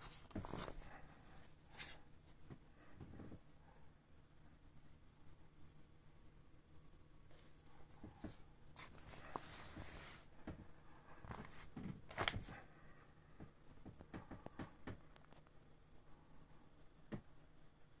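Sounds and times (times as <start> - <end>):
plastic rustling and crinkling: 0.0 - 2.0, 8.2 - 10.3, 11.2 - 12.6.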